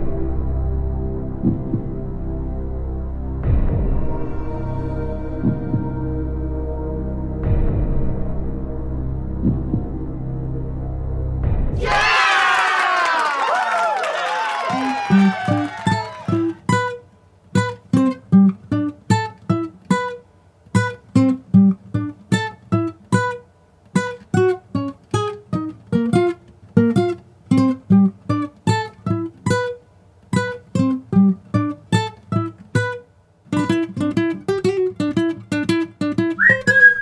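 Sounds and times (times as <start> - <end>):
acoustic guitar picking: 16.2 - 37.0.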